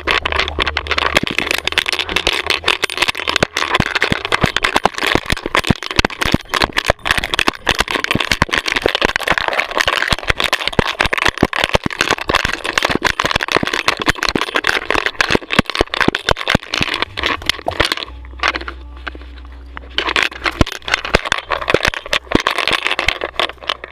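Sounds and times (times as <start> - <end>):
camera knocking and rattling: 0.0 - 19.2, 19.8 - 23.9
rustling: 0.0 - 23.9.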